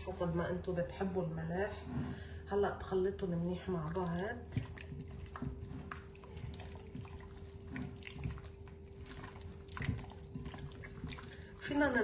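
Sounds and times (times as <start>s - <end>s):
hands squishing wet chicken: 3.8s - 12.0s.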